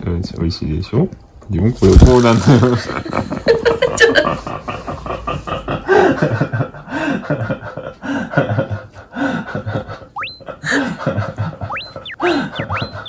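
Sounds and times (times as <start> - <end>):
laugh-like gasps: 9.1 - 13.0
rising whistle-like sweep: 10.2 - 10.4, 11.6 - 13.0.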